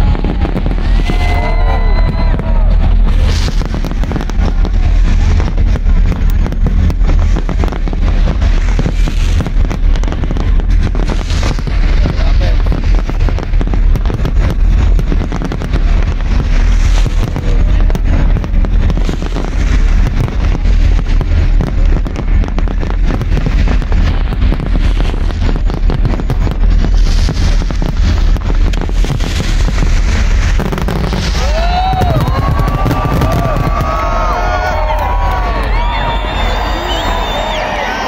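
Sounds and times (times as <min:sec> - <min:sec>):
crowd cheering and whooping: 0:00.0 - 0:06.5, 0:30.7 - 0:38.0
deep rumble: 0:00.0 - 0:38.0
fireworks bangs and crackling: 0:00.0 - 0:38.0.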